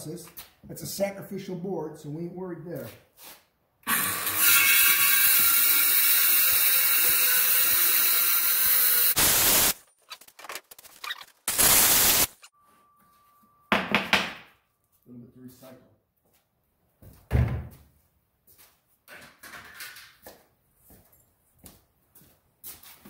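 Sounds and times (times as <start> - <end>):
circular saw cutting board: 3.9 - 9.7.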